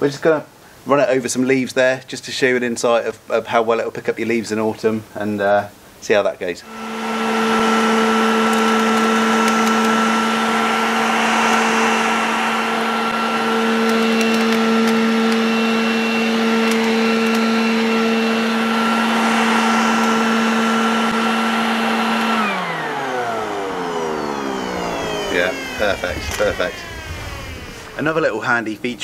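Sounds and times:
lawn vacuum motor whine: 0:06.6 - 0:28.8.

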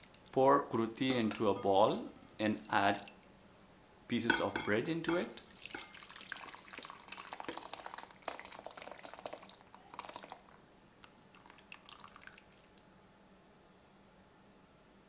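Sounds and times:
thick sauce splattering and dripping: 0:05.4 - 0:12.8.

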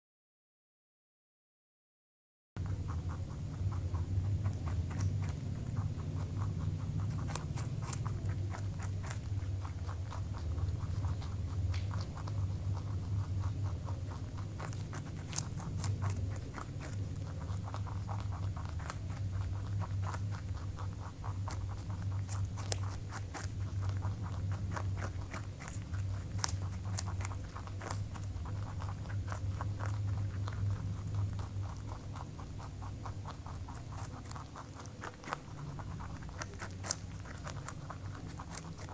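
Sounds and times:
rabbits chewing carrot: 0:02.6 - 0:38.9
steady low hum: 0:02.6 - 0:38.9.

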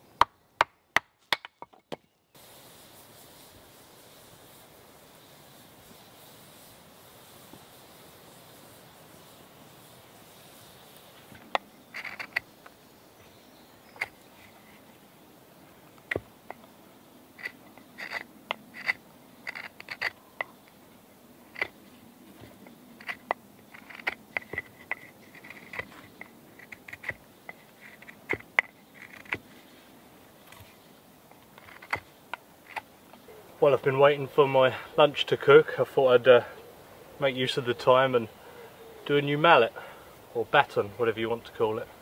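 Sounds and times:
knife scraping wood: 0:11.5 - 0:12.5, 0:17.4 - 0:20.7, 0:21.5 - 0:29.5, 0:31.4 - 0:32.9.

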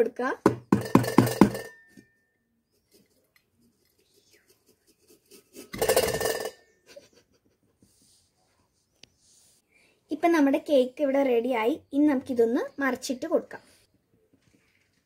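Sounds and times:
fingers tapping on metal tin: 0:00.5 - 0:01.7
metallic scrape and clatter: 0:05.4 - 0:06.8.

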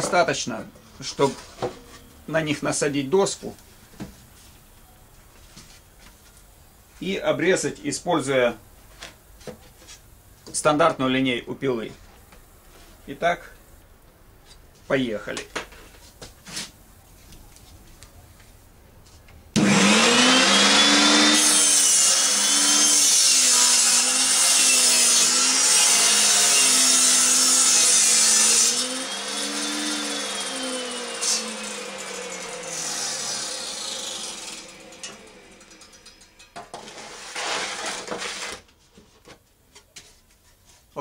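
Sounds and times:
table saw ripping a board: 0:19.6 - 0:38.7.

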